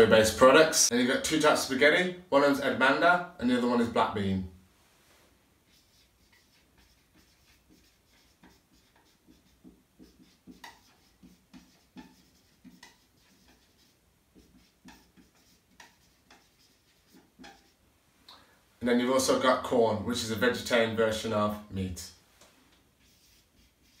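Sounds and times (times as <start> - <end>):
marker squeaking on whiteboard: 5.6 - 17.8, 23.0 - 24.0.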